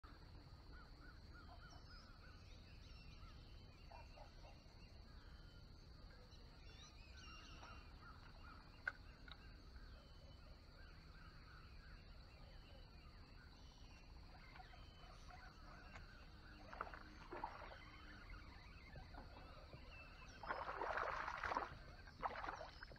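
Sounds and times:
birds chirping: 6.4 - 22.9.

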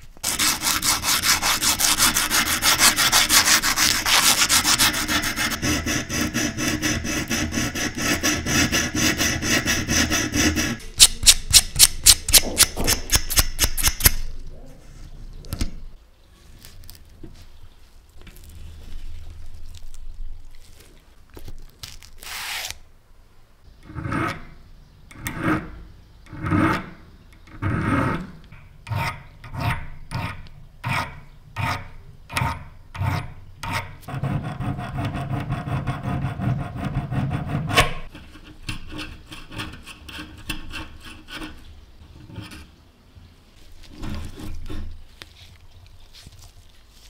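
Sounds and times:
needle files rasping on metal: 0.2 - 14.2, 28.9 - 41.7.

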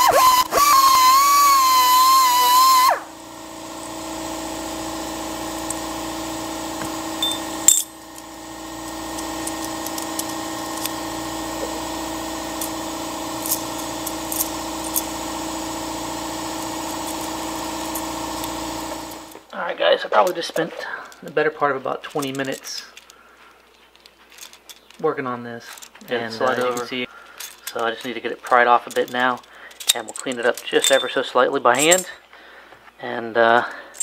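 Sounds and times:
rotary tool grinding whine: 0.0 - 19.5, 25.8 - 31.2.

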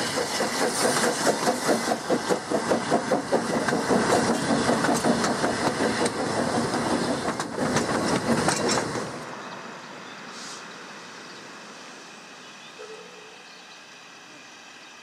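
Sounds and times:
train wheels clattering over rail joints: 0.0 - 9.3
short hiss: 10.3 - 10.8.

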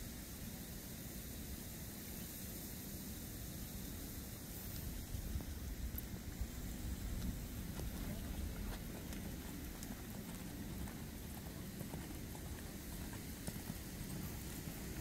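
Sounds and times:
steady low rumble: 4.2 - 15.0
horse hoofbeats on sand: 6.9 - 15.0.

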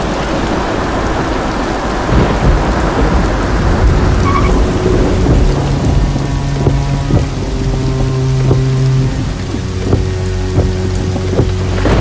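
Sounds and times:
heavy rain pouring: 0.0 - 12.0
thunder rumbling: 0.0 - 12.0.

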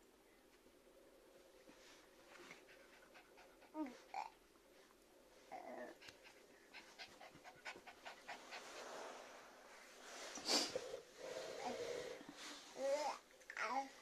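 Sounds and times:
dog panting quickly: 2.5 - 4.0, 6.0 - 9.0
baby's voice: 12.8 - 14.0.

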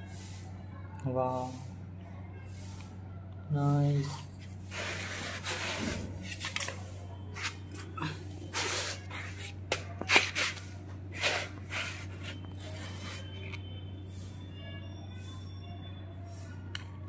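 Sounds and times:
toy car scraping on concrete: 4.0 - 6.6.

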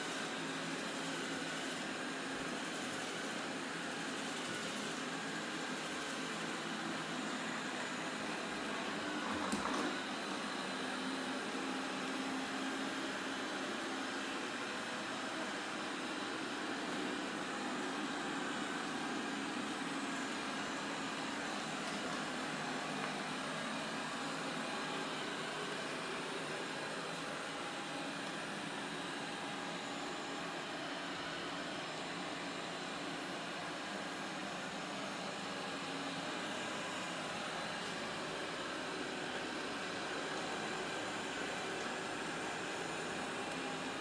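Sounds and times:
robot vacuum cleaner whirring: 0.0 - 44.0.

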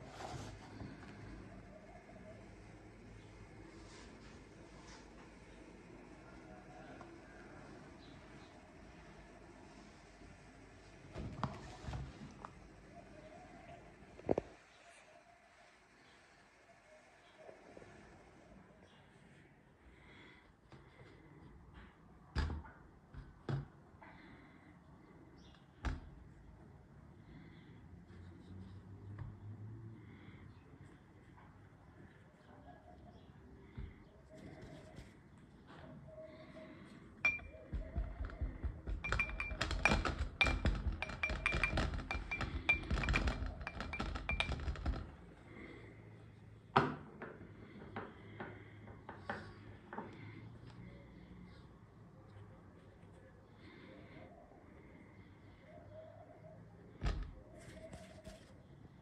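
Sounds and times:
glassy clink: 37.3 - 37.5
glass knocking on metal bowl: 37.3 - 38.2, 38.9 - 44.5.

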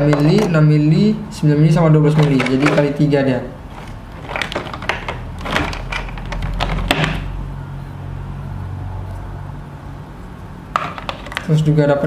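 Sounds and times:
plastic packaging being handled: 3.6 - 7.0.

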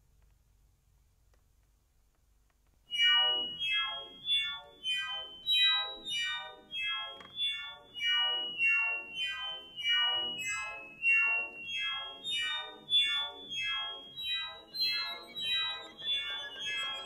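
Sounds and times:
electronic tape music: 2.9 - 17.0.

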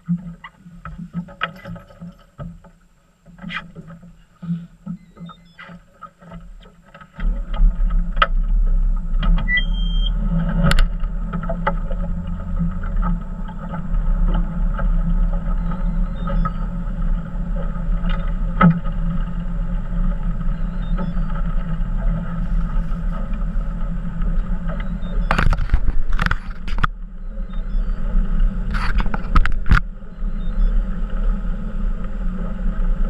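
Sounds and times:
knocks and rattles on hull: 0.0 - 9.5, 10.1 - 33.0
outboard motor rumbling: 0.0 - 33.0
wind on microphone: 7.2 - 33.0
short high beep: 9.5 - 10.1.

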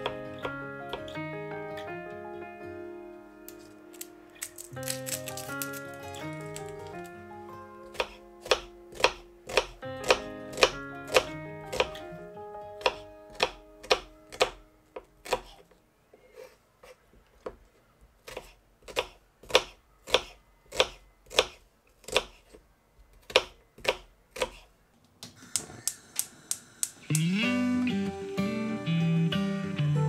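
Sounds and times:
knife slicing onion on board: 7.8 - 12.0, 12.8 - 15.6, 18.2 - 22.6, 23.2 - 24.7.

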